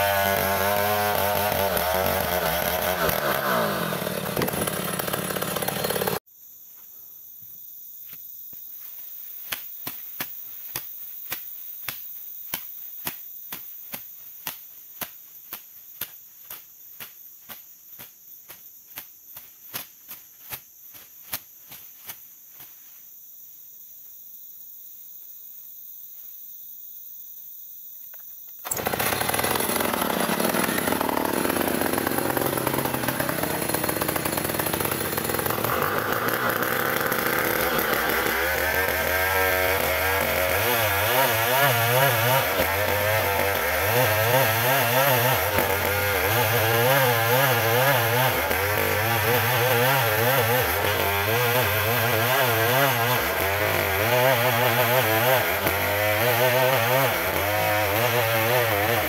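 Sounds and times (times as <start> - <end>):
chainsaw cutting wood: 0.0 - 6.2, 28.6 - 59.0
insects chirping: 6.2 - 29.2.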